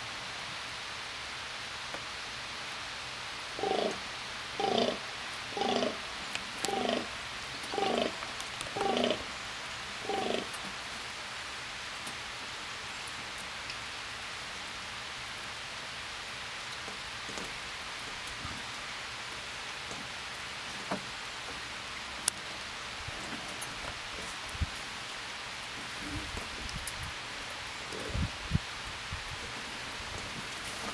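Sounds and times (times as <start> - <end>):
steady hiss: 0.0 - 30.9
deer groaning: 3.6 - 4.0, 4.6 - 6.0, 6.6 - 7.1, 7.7 - 8.2, 8.8 - 9.3, 10.0 - 10.5
faint ticks: 5.8 - 7.0.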